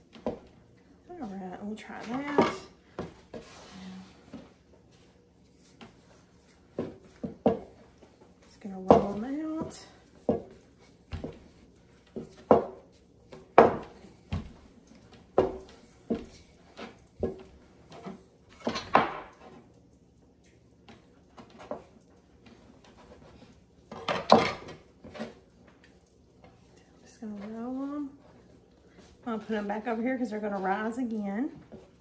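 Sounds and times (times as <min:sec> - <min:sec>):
rolling pin on wooden counter: 0:04.3 - 0:19.4.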